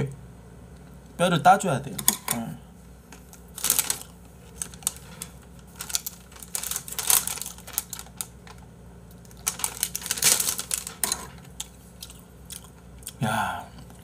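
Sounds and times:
plastic bag crinkling: 0:03.2 - 0:11.8.

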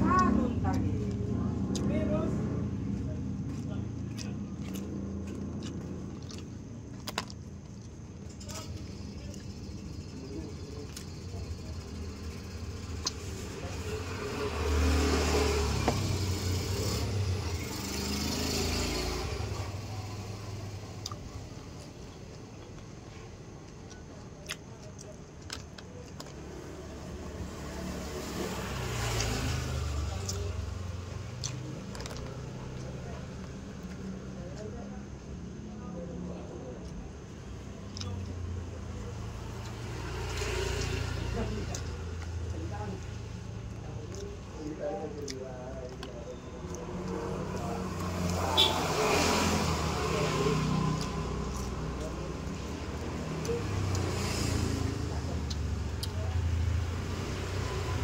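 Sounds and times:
vehicle driving past: 0:11.3 - 0:21.8, 0:26.4 - 0:34.7, 0:38.4 - 0:58.0.

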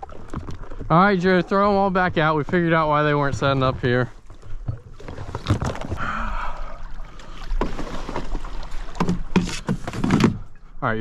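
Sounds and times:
paddle splashes: 0:00.0 - 0:10.7
paddle knocking against hull: 0:01.2 - 0:05.9, 0:07.5 - 0:10.5.

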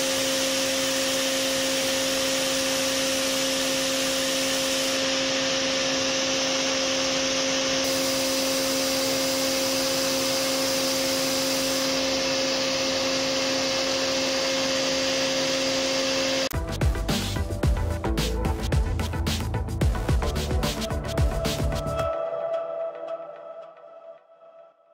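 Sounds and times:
machine spindle whine: 0:00.0 - 0:16.5.

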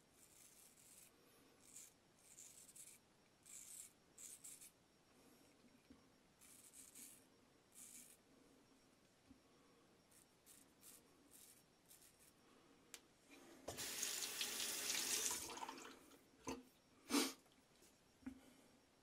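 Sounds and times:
razor scraping stubble: 0:00.1 - 0:04.8, 0:06.4 - 0:07.2, 0:07.8 - 0:08.2
sink tap running: 0:13.7 - 0:15.9.

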